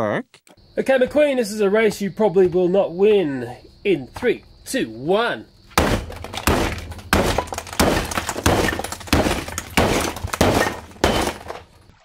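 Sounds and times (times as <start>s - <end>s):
plastic toy car smashed: 5.8s - 11.8s
breaking plastic clatter: 5.8s - 12.0s.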